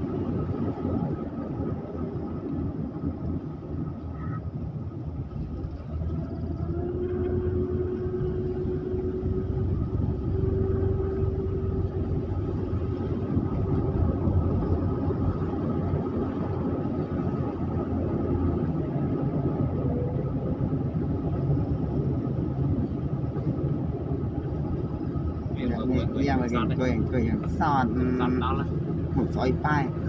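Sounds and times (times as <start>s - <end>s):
car engine and tyres rumbling: 0.0s - 30.0s
faint steady whine: 0.0s - 30.0s.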